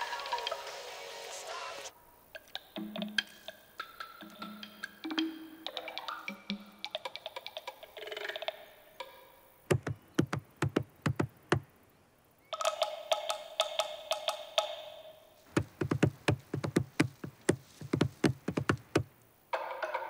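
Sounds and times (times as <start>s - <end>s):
sharp knocks on wood: 9.7s - 11.7s, 15.5s - 19.1s.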